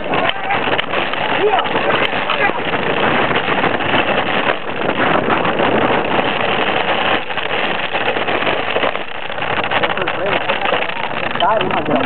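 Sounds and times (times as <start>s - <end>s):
cart wheels rattling on pavement: 0.0s - 12.0s
wind buffeting microphone: 0.0s - 12.0s.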